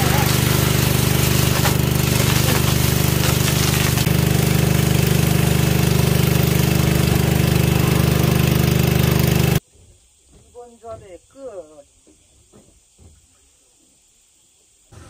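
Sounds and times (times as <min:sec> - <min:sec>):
pressure washer motor humming: 0:00.0 - 0:09.6.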